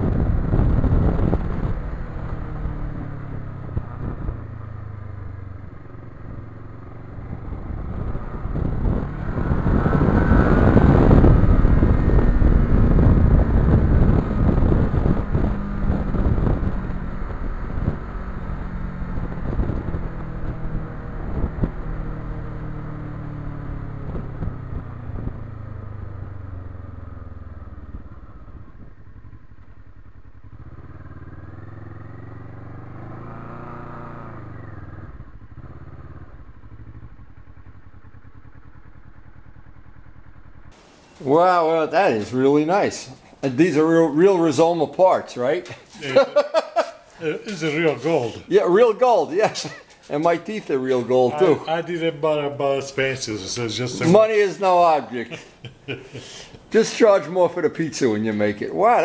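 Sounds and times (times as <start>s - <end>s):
wind buffeting microphone: 0.0s - 5.5s, 7.1s - 22.0s
motorcycle engine running: 0.0s - 40.8s.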